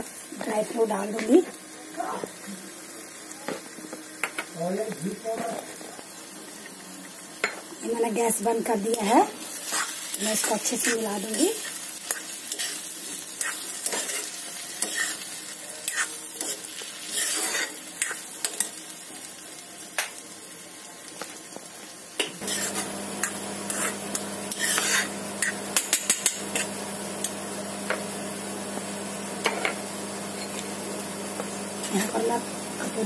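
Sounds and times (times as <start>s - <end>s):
light sizzle of ghee: 0.0s - 33.0s
metal spoon scraping pan: 9.6s - 18.7s, 22.4s - 26.8s.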